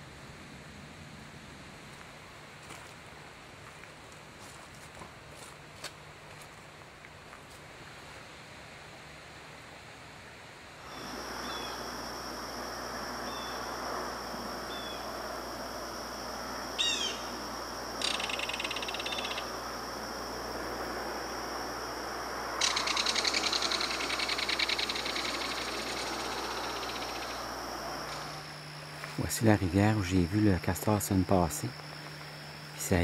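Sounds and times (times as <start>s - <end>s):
even hiss: 7.7s - 33.0s
bird rattling call: 18.0s - 19.4s, 22.6s - 27.4s
high background tone: 22.4s - 33.0s.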